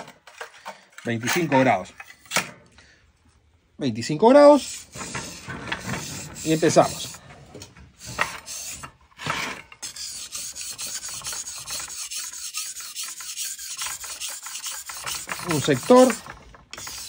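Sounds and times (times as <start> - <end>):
knife rasping on sharpening stone: 9.8 - 17.0.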